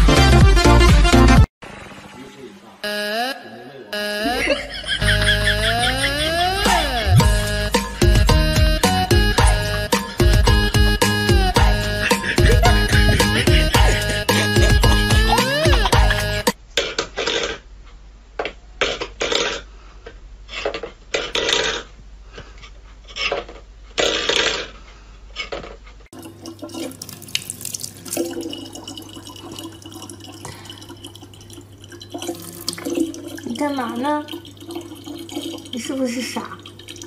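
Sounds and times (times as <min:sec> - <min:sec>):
water running from a tap: 0:26.2 - 0:37.0.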